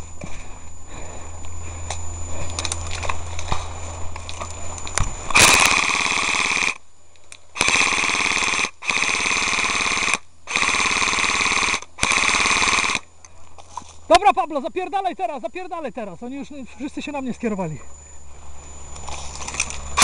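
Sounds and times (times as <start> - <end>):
airsoft gun full-auto bursts: 5.4 - 6.8, 7.6 - 13.0.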